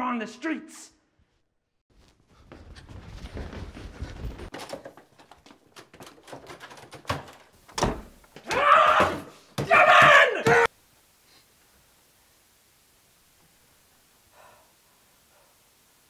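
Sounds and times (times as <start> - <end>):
scuffling footsteps: 1.9 - 6.5
person crying out: 8.5 - 10.7.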